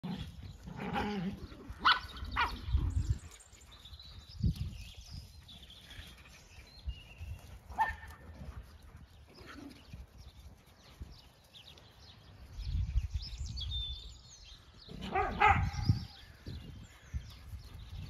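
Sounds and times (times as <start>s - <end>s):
birds singing faintly: 0.0s - 18.0s
dogs barking: 0.8s - 2.7s, 7.7s - 8.4s, 15.0s - 16.2s.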